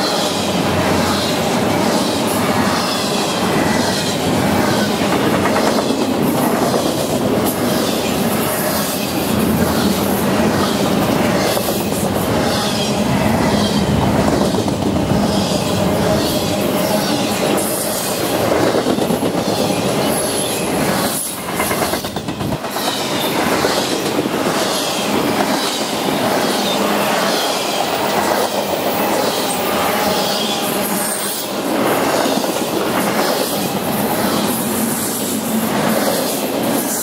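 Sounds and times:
train wheels clacking over rail joints: 0:13.5 - 0:30.4.

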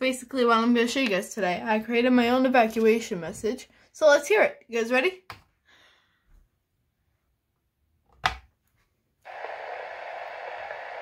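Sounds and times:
speaker hiss: 0:09.3 - 0:11.0.

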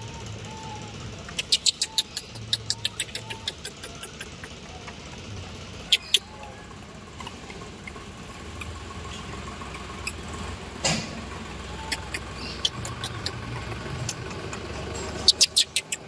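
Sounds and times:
vehicle engine idling: 0:00.0 - 0:16.0
sharp clicks: 0:11.9 - 0:16.0.

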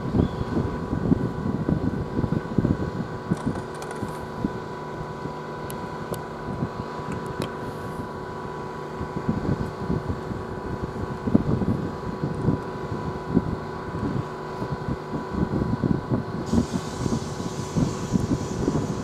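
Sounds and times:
locomotive humming: 0:00.0 - 0:19.0
wind rumble on microphone: 0:00.0 - 0:19.0.

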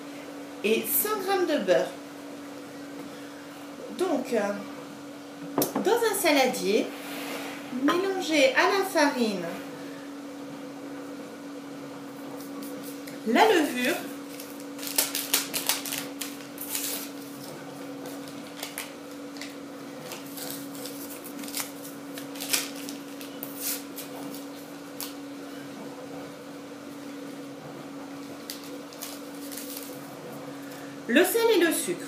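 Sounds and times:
steady low hum: 0:00.0 - 0:32.0
paper sachets crinkling: 0:13.8 - 0:25.2, 0:28.3 - 0:30.8.

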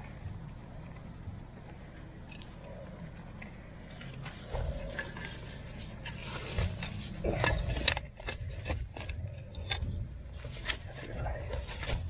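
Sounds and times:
shovel digging into soil: 0:06.3 - 0:09.8.

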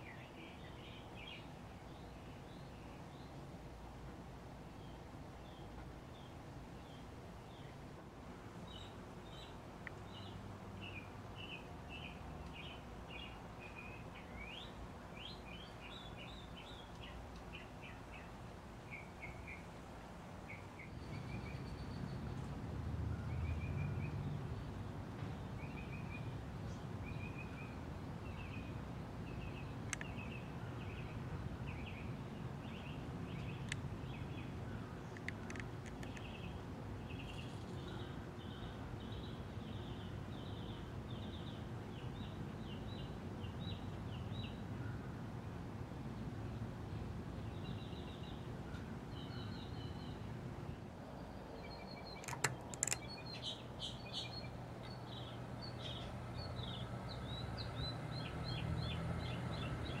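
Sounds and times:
small birds chirping: 0:08.7 - 0:22.6, 0:23.2 - 0:45.0, 0:47.4 - 1:00.0
sharp clicks: 0:35.1 - 0:36.3, 0:52.2 - 0:53.2.

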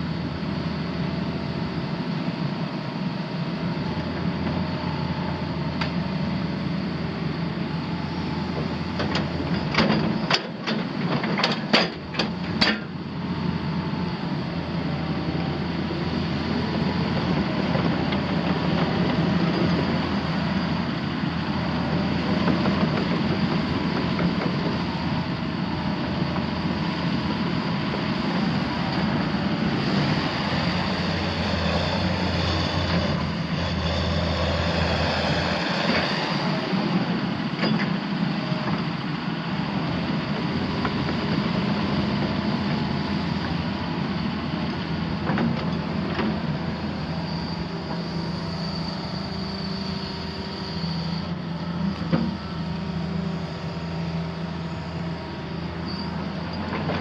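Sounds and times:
diesel excavator engine running: 0:00.0 - 0:57.0.

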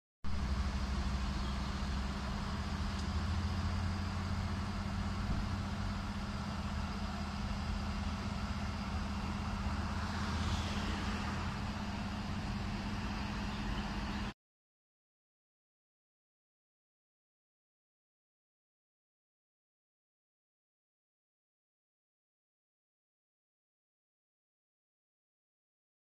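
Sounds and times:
diesel engine idling: 0:00.3 - 0:14.4.

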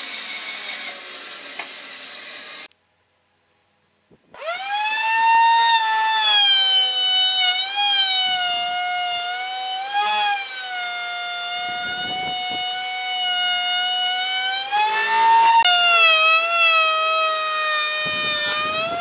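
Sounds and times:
electric power tool motor whining: 0:00.0 - 0:02.7, 0:04.3 - 0:19.0
cutting noise: 0:04.4 - 0:19.0.

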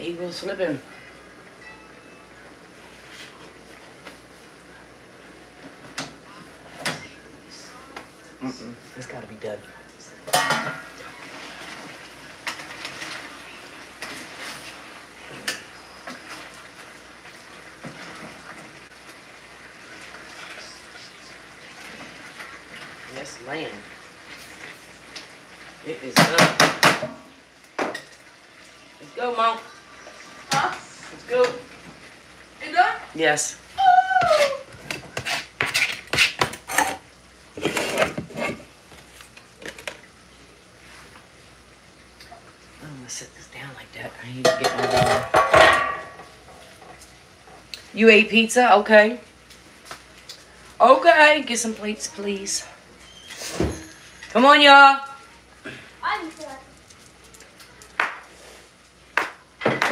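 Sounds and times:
utensil stirring in a skillet: 0:10.8 - 0:27.0, 0:34.2 - 0:40.0
cookware scraping: 0:34.3 - 0:38.7, 0:44.4 - 0:47.0
pot lid and cookware clinking: 0:44.5 - 0:46.3.

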